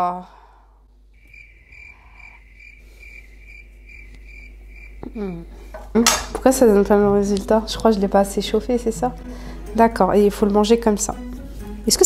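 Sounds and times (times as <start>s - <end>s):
cricket chirping: 1.1s - 5.1s.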